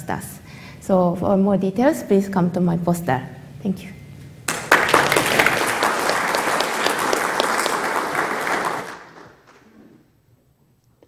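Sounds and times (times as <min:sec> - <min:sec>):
audience applauding: 0:04.5 - 0:09.9.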